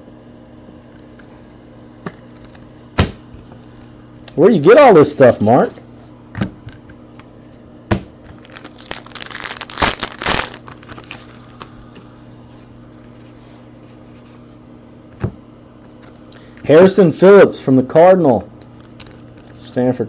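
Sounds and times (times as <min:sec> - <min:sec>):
foil wrapper tearing and crinkling: 0:08.3 - 0:11.7, 0:18.7 - 0:19.6.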